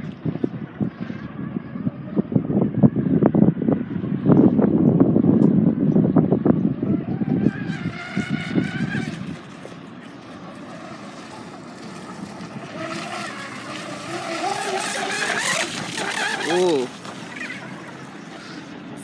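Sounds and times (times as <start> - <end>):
wind buffeting microphone: 0.0 - 19.0
electric motor whining: 6.7 - 18.7
boat hull and spray hiss: 9.2 - 19.0.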